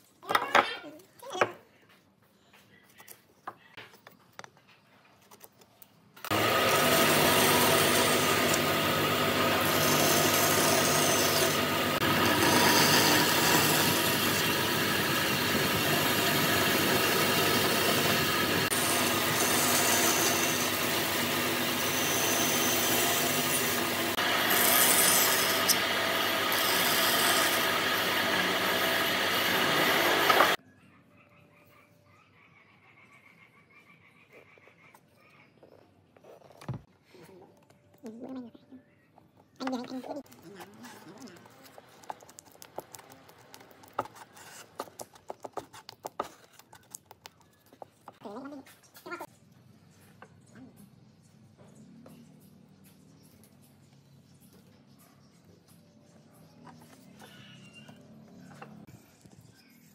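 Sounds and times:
band saw cutting wood: 0:06.3 - 0:30.6.

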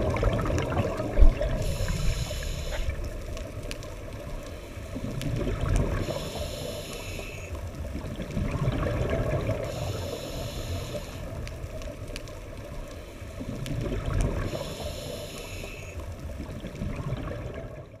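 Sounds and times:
underwater bubbling rumble: 0:00.0 - 0:06.9, 0:07.5 - 0:15.0, 0:15.9 - 0:18.0
regulator breathing hiss: 0:01.6 - 0:03.1, 0:06.0 - 0:07.5, 0:09.6 - 0:11.4, 0:14.4 - 0:16.0.

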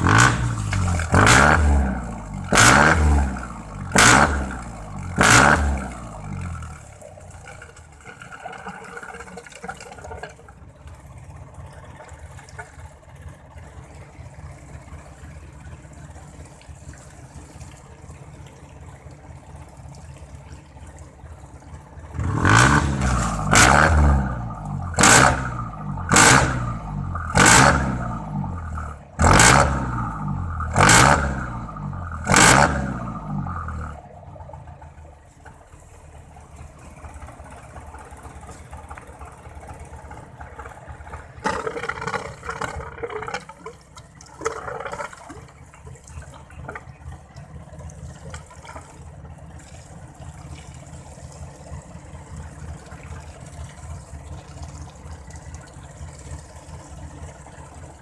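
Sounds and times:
engine revving: 0:00.0 - 0:06.8, 0:22.1 - 0:34.0
engine idling: 0:00.0 - 0:58.0
hose water splashing: 0:00.0 - 0:58.0
water spraying from tailpipe: 0:00.0 - 0:58.0.

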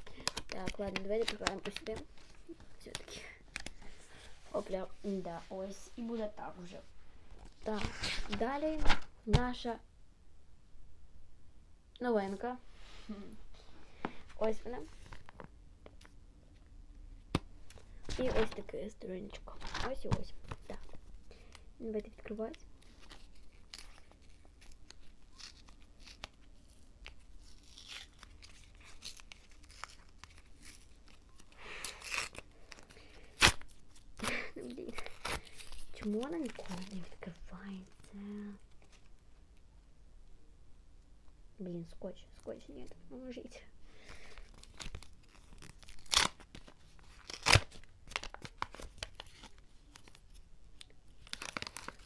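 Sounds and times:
foil packet crinkling and tearing: 0:00.0 - 0:03.8, 0:22.4 - 0:39.2, 0:44.0 - 0:52.0
paper ripping: 0:22.8 - 0:37.4, 0:44.5 - 0:50.2, 0:51.2 - 0:52.0.

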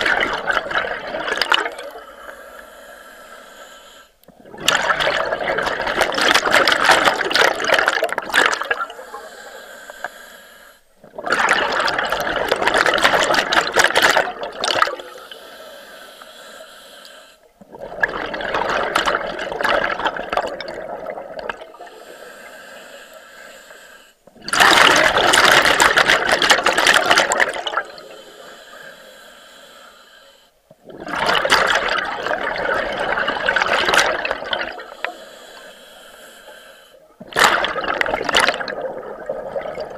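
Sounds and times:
exhaled bubbles rushing: 0:00.0 - 0:02.0, 0:04.4 - 0:09.0, 0:11.0 - 0:15.1, 0:17.6 - 0:21.9, 0:24.4 - 0:28.1, 0:30.8 - 0:35.0, 0:37.2 - 0:39.9.

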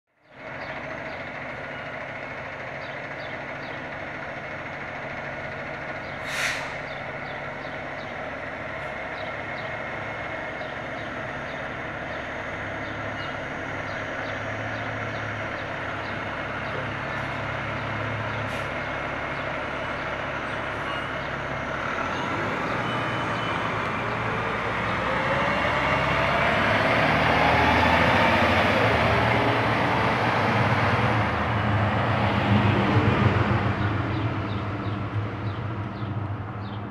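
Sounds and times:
fire engine diesel engine: 0:00.1 - 0:36.9
air brake hiss: 0:06.2 - 0:06.8.

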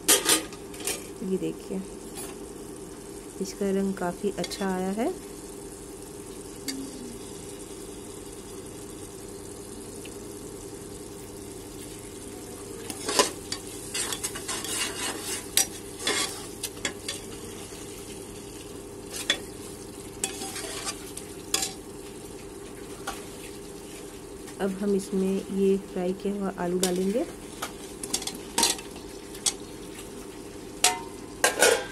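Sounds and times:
masala sizzling: 0:00.0 - 0:31.9
ladle scraping a pressure cooker: 0:12.9 - 0:16.5, 0:20.3 - 0:21.0.

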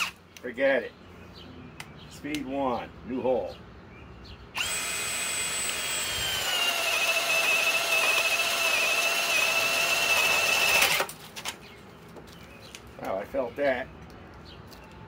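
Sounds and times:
drill boring through wood: 0:04.6 - 0:11.1.

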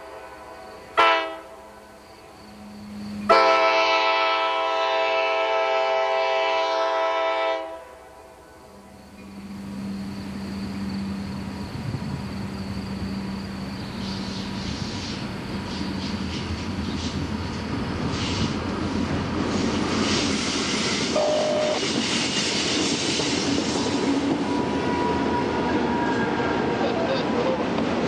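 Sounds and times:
locomotive air horn: 0:00.0 - 0:01.7, 0:03.2 - 0:08.4, 0:21.1 - 0:22.0
diesel train rumble: 0:00.0 - 0:28.0
train wheels clicking on track: 0:10.2 - 0:28.0.

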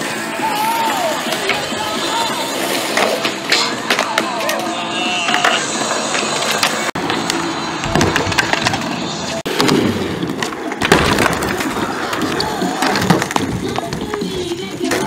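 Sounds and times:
skateboard decks clacking: 0:00.0 - 0:15.0
skateboard wheels rolling on concrete: 0:00.0 - 0:15.0.

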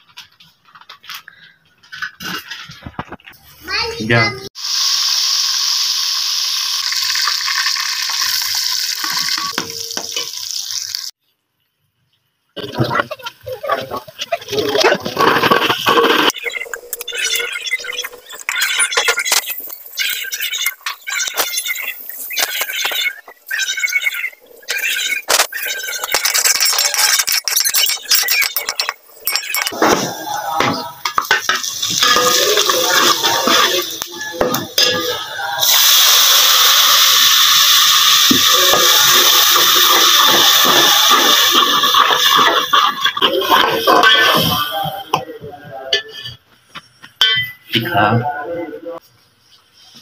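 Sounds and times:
hot oil sizzling in pot: 0:04.5 - 0:11.2, 0:28.5 - 0:44.8
metal spoon scraping a pot: 0:38.5 - 0:45.2.

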